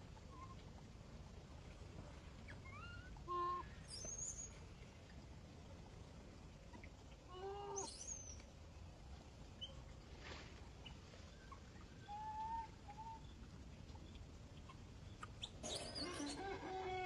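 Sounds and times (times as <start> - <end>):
low steady hum: 0.0 - 17.0
faint animal calls: 2.5 - 4.6, 6.7 - 8.1, 10.8 - 13.3, 14.6 - 17.0.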